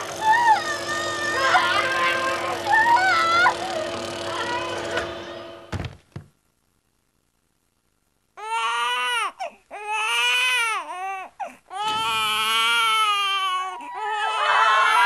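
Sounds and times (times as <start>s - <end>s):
people talking: 0.2s - 5.2s
newborn baby crying: 8.4s - 15.0s.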